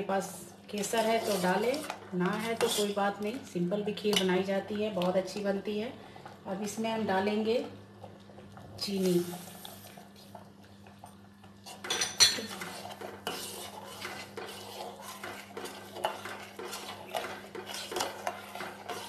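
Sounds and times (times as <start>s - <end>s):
ladle scraping and clinking pot: 0.8s - 3.0s, 11.7s - 19.0s.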